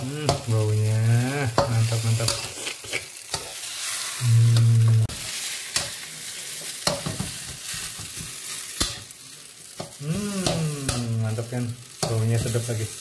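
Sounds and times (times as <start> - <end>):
frying sizzle: 0.0 - 13.0
metal spatula scraping wok: 1.4 - 4.2.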